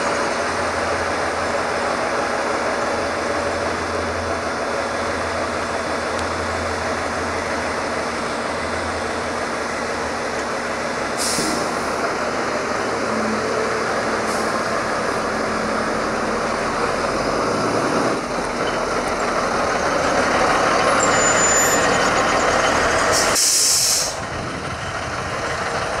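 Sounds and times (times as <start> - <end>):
fire engine diesel engine running: 0.0 - 26.0
air brakes hissing: 11.1 - 12.0, 14.2 - 14.8, 23.1 - 24.3.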